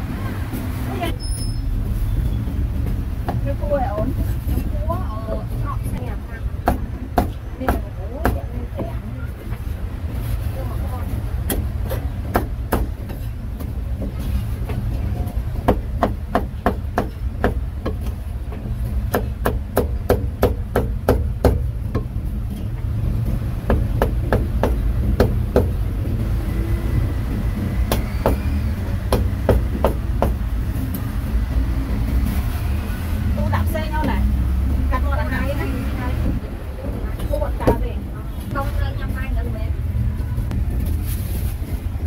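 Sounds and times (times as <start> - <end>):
steady low rumble: 28.6 - 42.0.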